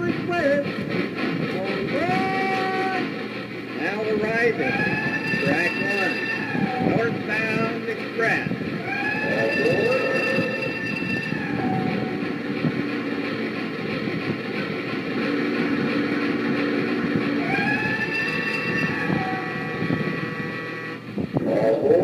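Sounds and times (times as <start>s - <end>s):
toy train rattling on track: 0.0s - 19.4s
rising pitched tone: 8.8s - 12.4s.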